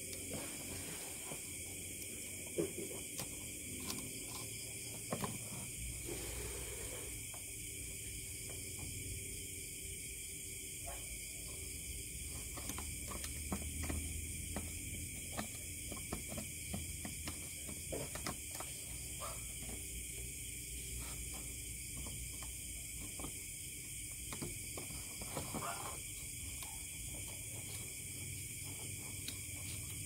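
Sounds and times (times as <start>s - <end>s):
high background hiss: 5.3s - 12.8s.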